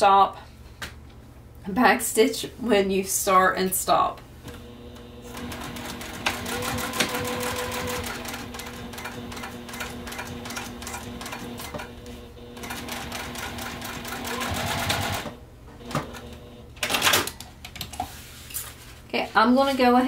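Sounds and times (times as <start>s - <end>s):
sewing machine stitching: 4.5s - 16.5s.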